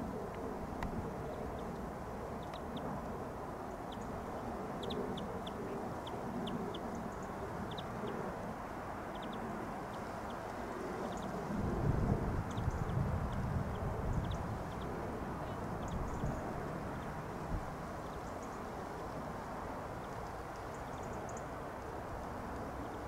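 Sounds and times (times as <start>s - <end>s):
distant helicopter rumble: 0.0s - 20.3s
small birds chirping: 0.8s - 8.2s, 9.1s - 11.4s, 12.4s - 17.2s.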